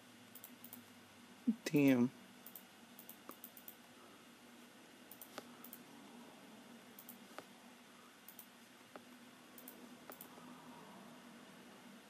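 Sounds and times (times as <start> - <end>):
faint low hum: 0.0 - 12.0
laptop clicks: 9.6 - 10.3.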